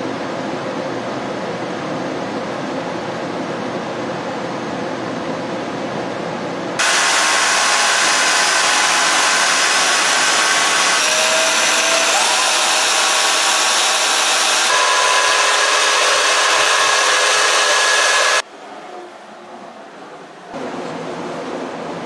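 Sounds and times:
electric drill motor running: 0:06.8 - 0:18.4.

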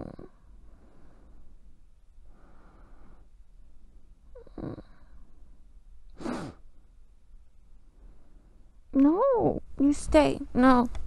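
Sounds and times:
woman breathing slowly: 0:00.0 - 0:04.2, 0:07.8 - 0:08.9.

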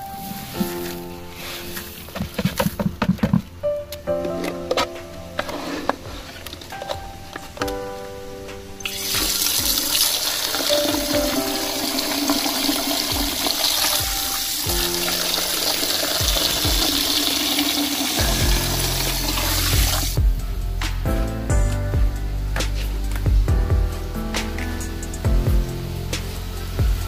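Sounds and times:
water running into plastic bucket: 0:08.9 - 0:20.2.

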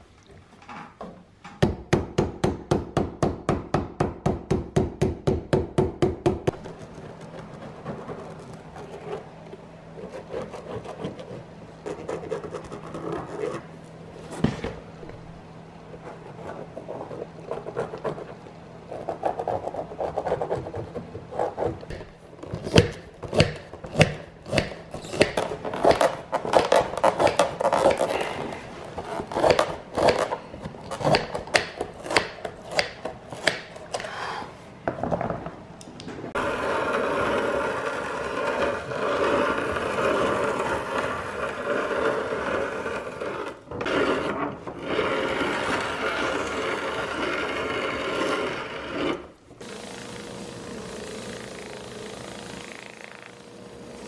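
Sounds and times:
metal scribe scratching leather: 0:10.0 - 0:14.5.

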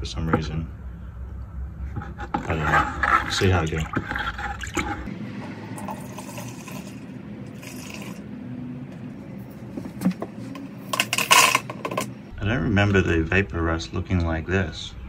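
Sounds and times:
liquid pouring into plastic tub: 0:07.6 - 0:08.2.

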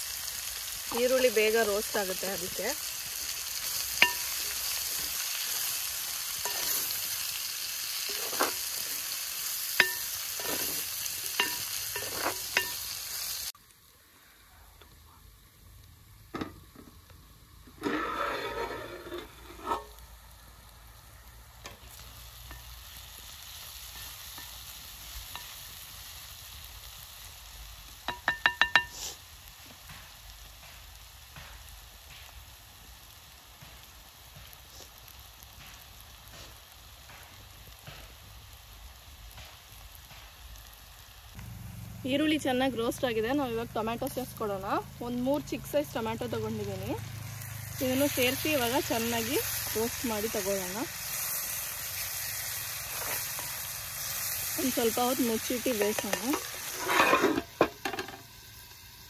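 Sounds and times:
onions sizzling in oil: 0:00.0 - 0:59.0
metal spoon clicking on pan: 0:11.4 - 0:12.8
scrapes and knocks: 0:17.8 - 0:19.9
metal clinks against pan: 0:28.1 - 0:29.0.

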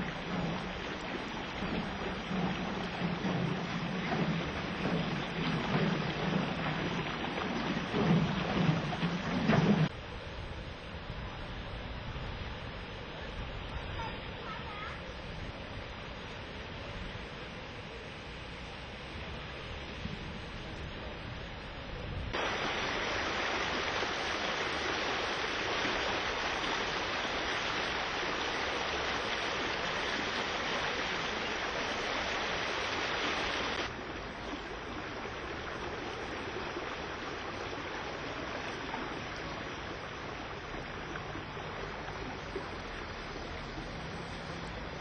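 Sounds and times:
floodwater rushing: 0:00.0 - 0:10.0, 0:22.3 - 0:45.0.

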